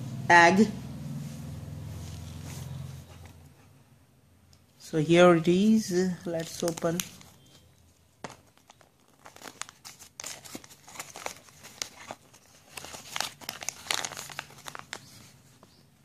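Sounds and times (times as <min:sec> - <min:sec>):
plastic and paper crinkling: 0:06.2 - 0:15.8.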